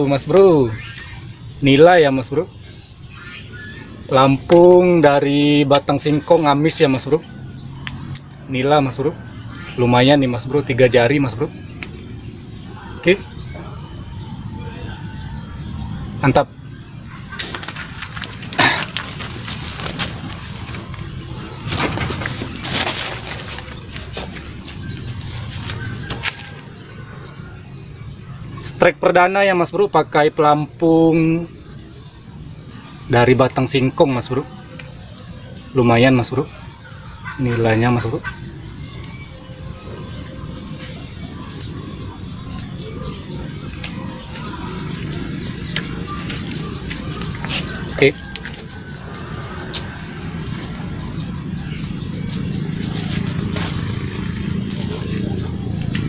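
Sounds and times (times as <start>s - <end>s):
high insect drone: 0.0s - 56.0s
small birds chirping: 0.0s - 56.0s
steady low rumble: 38.6s - 56.0s.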